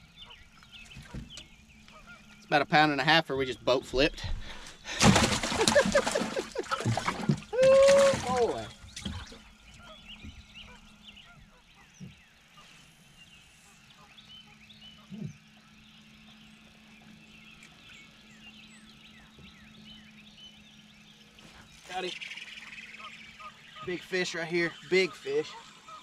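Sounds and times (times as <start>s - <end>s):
small birds chirping: 0.0s - 26.0s
steady low hum: 0.0s - 26.0s.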